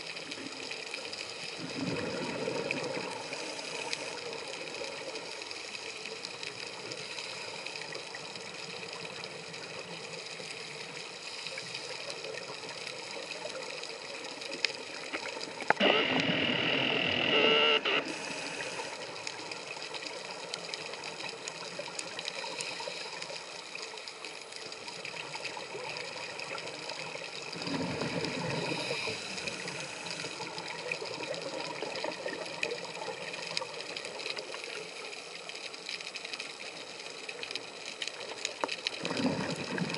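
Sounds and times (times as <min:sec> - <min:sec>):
underwater regulator noise: 0:15.7 - 0:19.0
exhaled bubbles bursting: 0:39.0 - 0:39.9.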